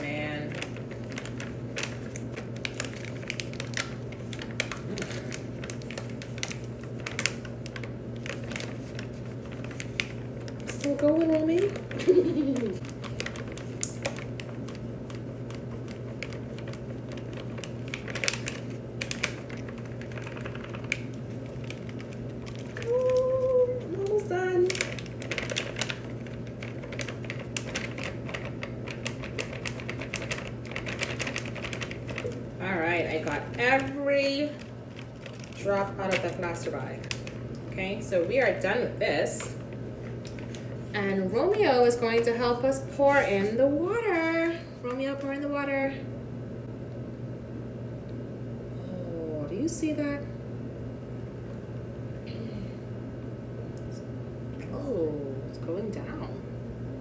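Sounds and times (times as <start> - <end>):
plastic bag crinkling: 0.0 - 38.6, 39.2 - 42.3.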